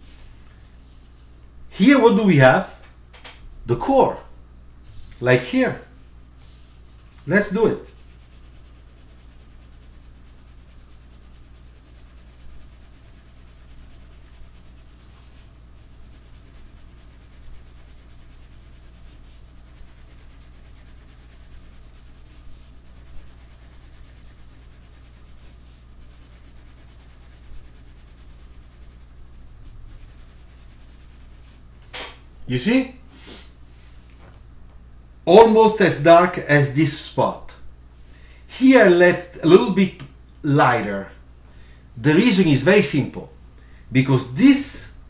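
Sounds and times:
low electrical hum: 0.0s - 45.0s
pencil shading on paper: 7.6s - 31.6s.

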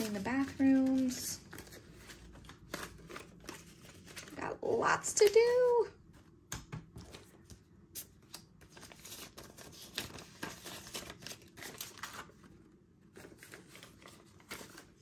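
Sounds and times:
paper bills rustling: 0.0s - 4.4s, 7.0s - 12.6s, 13.2s - 15.0s.

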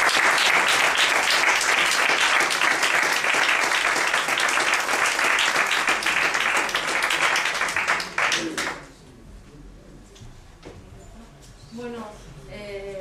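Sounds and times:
audience applauding: 0.0s - 8.9s.

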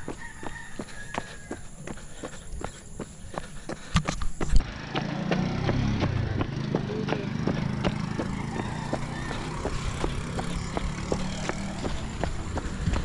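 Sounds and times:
jogging footsteps on concrete: 0.0s - 13.0s
small engine running: 4.5s - 13.0s.

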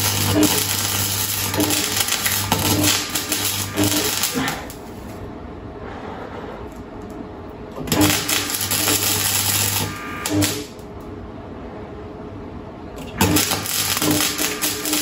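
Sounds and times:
welding arc crackling and buzzing: 0.0s - 5.3s, 7.8s - 11.0s, 13.0s - 15.0s.

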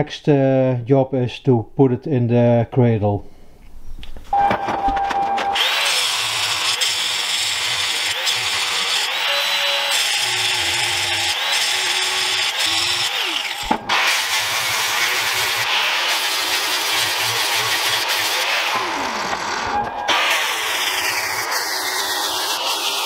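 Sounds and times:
angle grinder grinding metal: 4.9s - 23.0s.

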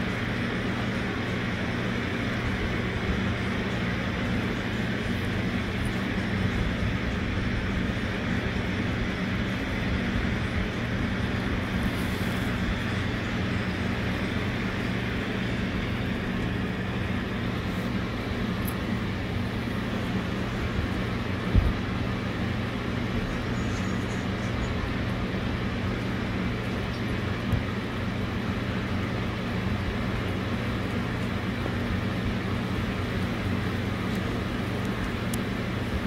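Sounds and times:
low steady hum: 0.0s - 36.0s
rain hiss: 0.0s - 36.0s.

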